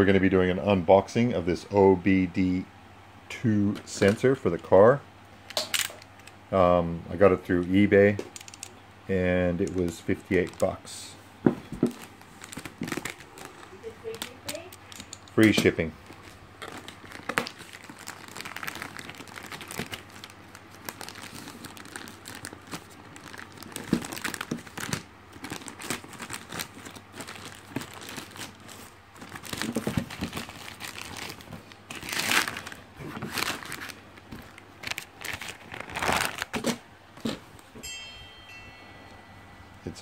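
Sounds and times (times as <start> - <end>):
plastic bag crinkling: 9.6 - 10.9, 11.7 - 37.4
plastic tearing: 11.9 - 37.4.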